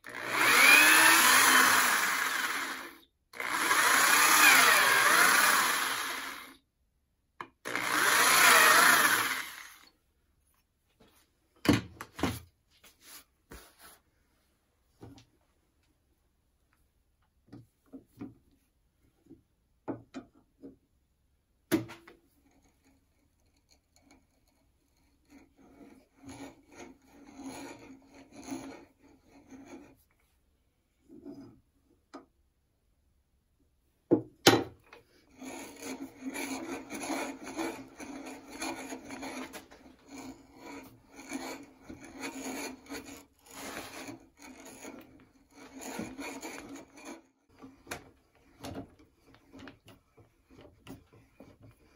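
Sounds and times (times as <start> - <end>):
auger bit boring into wood: 0.0 - 6.6, 7.6 - 9.9, 35.4 - 51.9.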